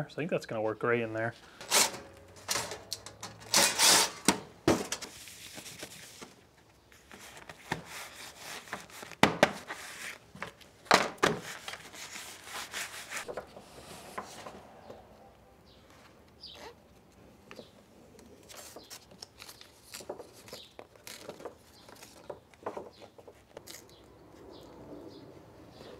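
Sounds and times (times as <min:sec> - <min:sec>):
foil insulation crinkling: 0:18.4 - 0:24.0.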